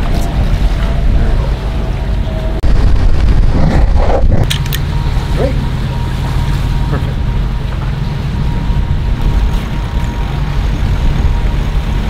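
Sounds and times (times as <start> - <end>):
boat low rumble: 0.0 - 12.0
water noise: 0.0 - 12.0
wind: 0.0 - 12.0.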